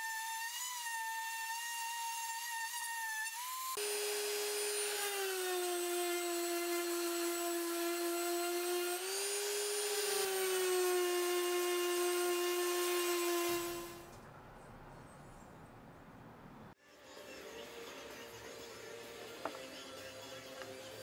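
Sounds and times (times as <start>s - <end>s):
orbital sander whining: 0.0s - 14.1s.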